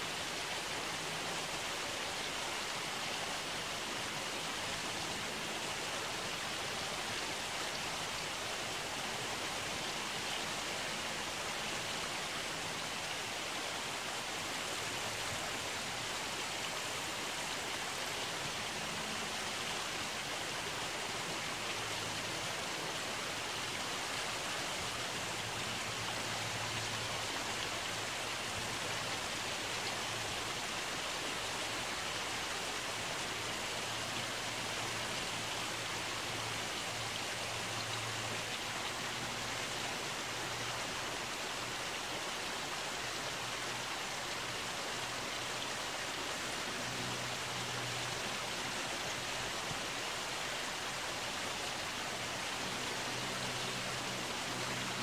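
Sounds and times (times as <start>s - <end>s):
river water rushing: 0.0s - 55.0s.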